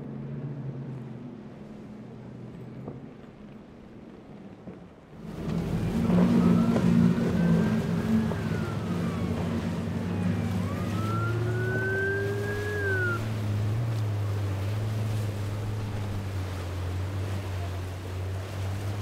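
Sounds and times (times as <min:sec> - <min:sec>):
motorboat engines running: 0:00.0 - 0:19.0
high rising and falling tone: 0:05.2 - 0:13.5.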